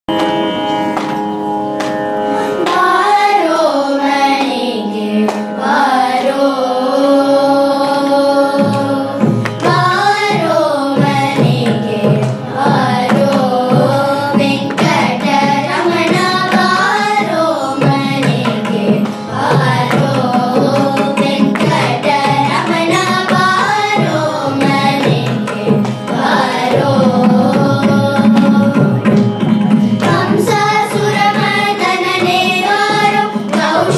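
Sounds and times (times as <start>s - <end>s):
children singing in unison: 2.3s - 33.9s
hand drum strokes: 8.5s - 33.9s.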